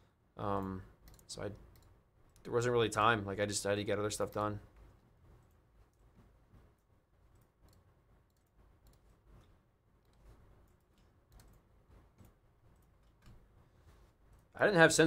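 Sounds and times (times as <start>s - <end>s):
computer keyboard clicks: 0.6s - 2.5s, 7.3s - 9.1s, 10.0s - 11.6s.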